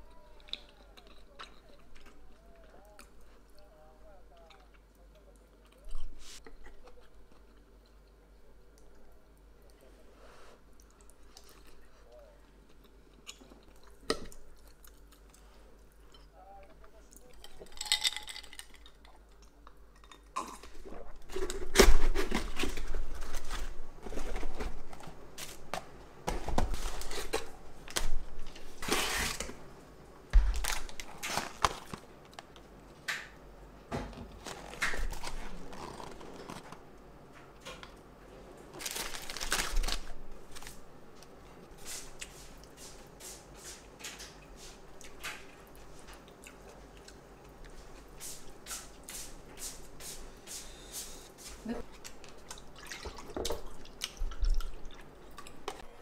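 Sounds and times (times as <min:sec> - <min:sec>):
plastic bag and cardboard rustling: 0:20.7 - 0:29.6, 0:30.4 - 0:32.1, 0:34.0 - 0:36.8, 0:38.6 - 0:40.8.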